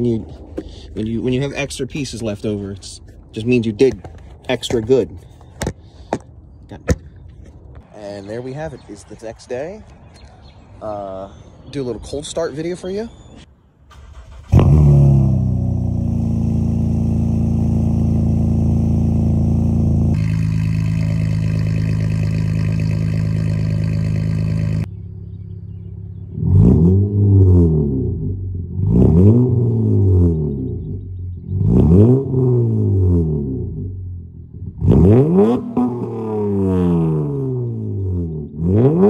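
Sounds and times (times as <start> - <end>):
car engine revving: 13.9 - 25.4, 26.3 - 30.9, 31.5 - 34.0, 34.6 - 39.0
car engine cold start and idle: 13.9 - 26.3.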